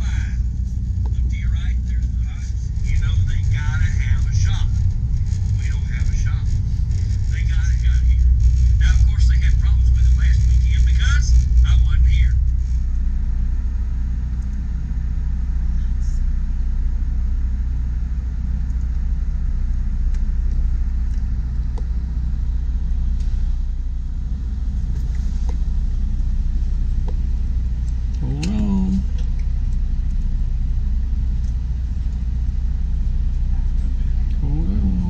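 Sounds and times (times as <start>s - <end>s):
vehicle rumbling: 0.0s - 35.0s.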